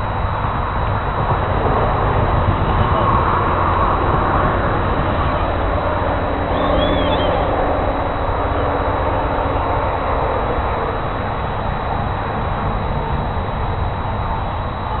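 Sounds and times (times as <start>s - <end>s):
wind buffeting microphone: 0.0s - 15.0s
bird chirp: 6.5s - 7.5s.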